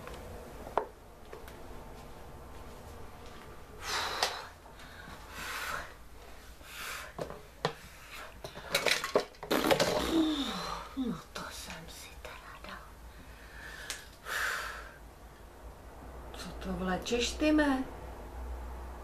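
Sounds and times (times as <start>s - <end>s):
plastic and glass clattering: 8.4s - 10.2s.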